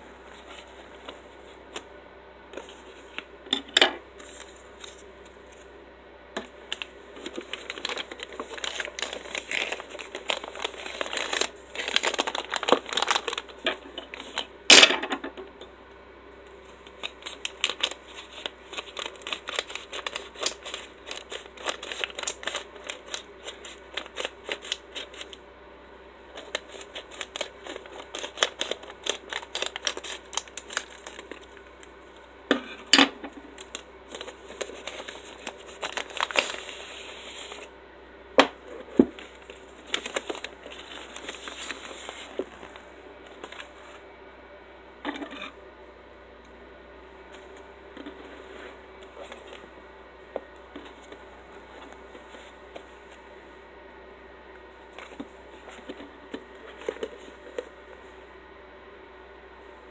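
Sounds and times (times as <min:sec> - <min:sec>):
plastic mailer crinkling: 0:06.4 - 0:14.9, 0:16.7 - 0:25.4, 0:26.3 - 0:31.9, 0:33.4 - 0:37.7, 0:38.6 - 0:43.8, 0:54.9 - 0:57.8.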